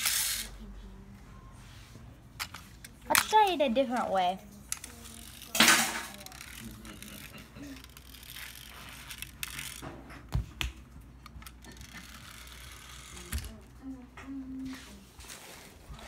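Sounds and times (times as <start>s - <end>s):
pull-back toy motor clicking: 4.7s - 9.8s, 11.2s - 13.5s.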